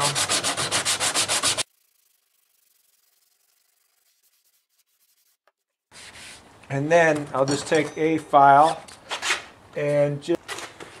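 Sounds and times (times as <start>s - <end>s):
sandpaper rubbing on edge: 0.0s - 6.4s.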